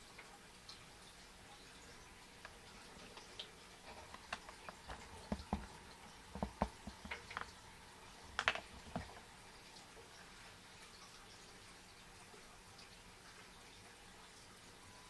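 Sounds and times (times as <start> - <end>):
wet clicks and soft thumps: 2.4 - 9.3.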